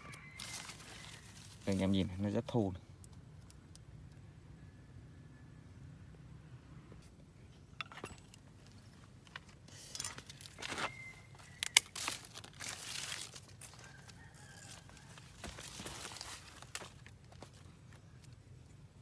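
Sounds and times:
leaves rustling: 0.0 - 2.4, 9.7 - 17.8.

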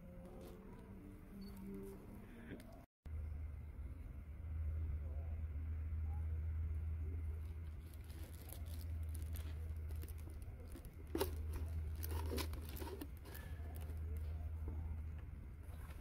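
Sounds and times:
steady low hum: 0.0 - 16.0
dry leaves rustling and crackling: 7.3 - 14.4.

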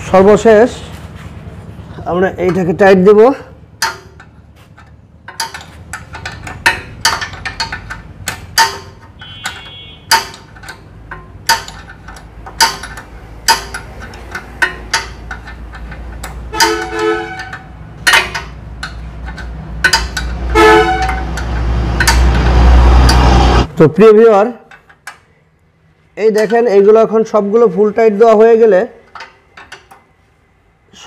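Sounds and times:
spanner clinking on nuts: 2.4 - 23.3, 29.0 - 30.1.

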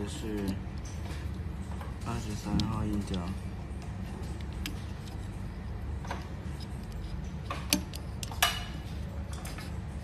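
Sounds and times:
steady low hum: 0.0 - 10.0
screwdriver and wire clicking: 6.1 - 8.5.

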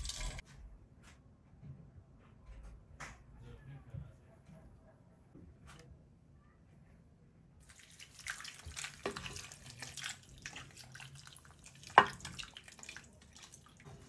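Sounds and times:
juice splashing and trickling: 7.6 - 14.0.

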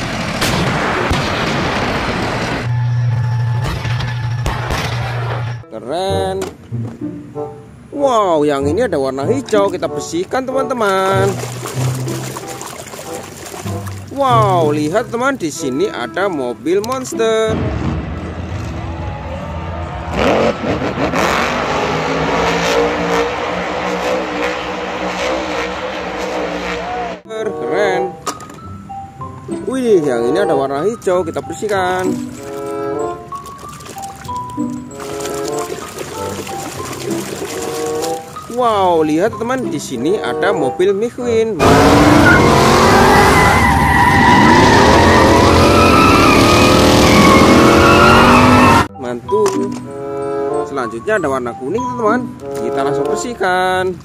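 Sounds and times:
monster truck engine revving: 17.5 - 27.2, 41.6 - 48.9
tyres screeching on asphalt: 41.6 - 48.9.

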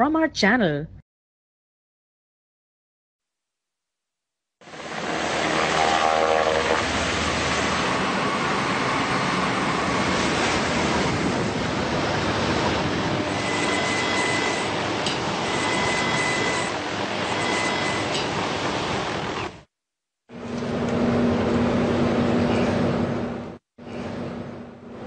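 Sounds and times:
engines and wind rushing: 4.6 - 19.7, 20.3 - 25.0
faint high whine: 12.8 - 18.2.

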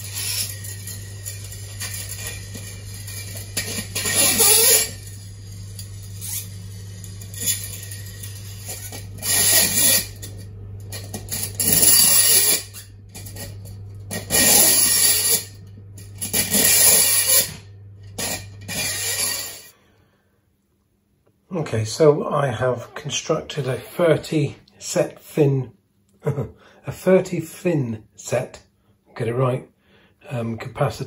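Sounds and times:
metal parts clinking and scraping: 0.0 - 19.7
steady low hum: 0.0 - 31.0.

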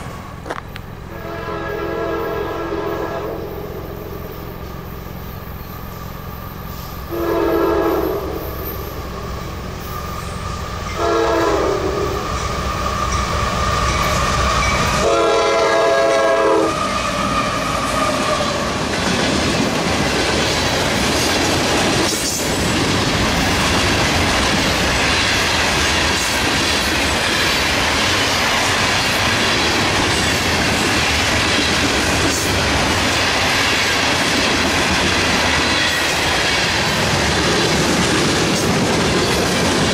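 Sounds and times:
train wheels rumbling on rails: 0.0 - 39.9
train horn blasts: 1.1 - 4.1, 7.1 - 8.9, 10.9 - 12.4, 14.6 - 18.6.

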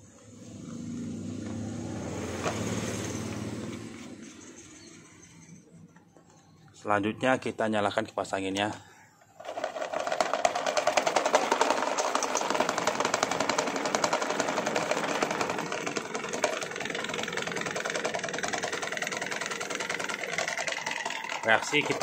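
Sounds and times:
electric fan running with rattle: 9.3 - 22.0.

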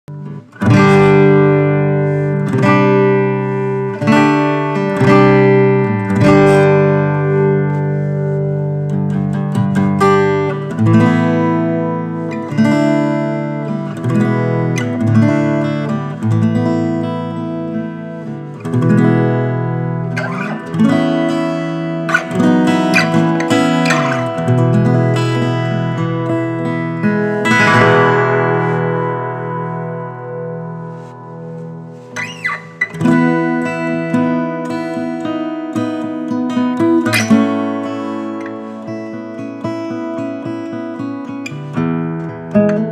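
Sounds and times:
fingerstyle acoustic guitar: 0.0 - 42.9.

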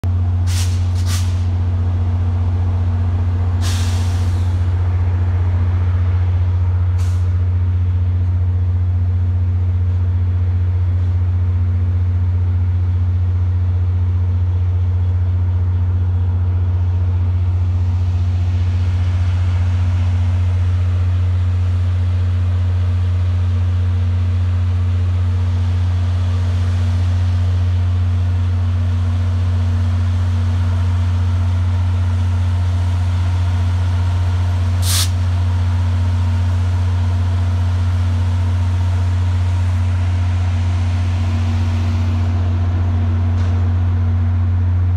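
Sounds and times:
diesel locomotive droning: 0.0 - 44.9
air brake hisses: 0.4 - 1.5, 3.6 - 4.6, 7.0 - 7.4, 34.8 - 35.2.

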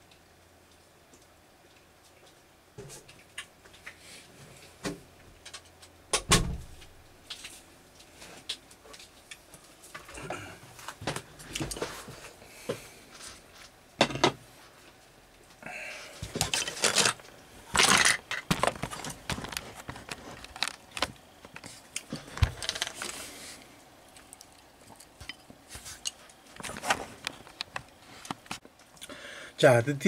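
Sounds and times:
scraping or rustling: 16.0 - 23.6.

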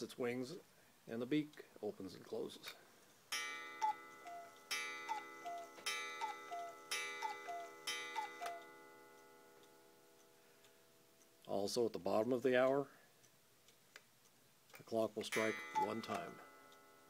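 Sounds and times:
cuckoo clock calls: 3.3 - 9.0, 15.3 - 17.0.

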